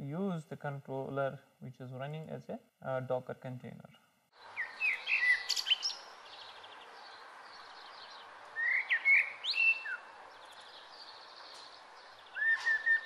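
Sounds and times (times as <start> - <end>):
birds chirping: 3.7 - 13.0.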